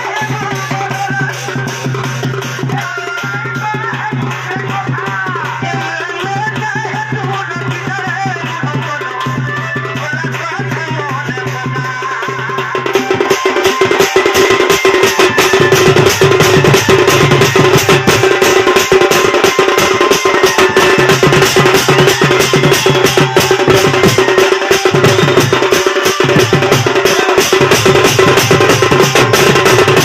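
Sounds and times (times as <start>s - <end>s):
barrel drum beaten fast: 0.0s - 30.0s.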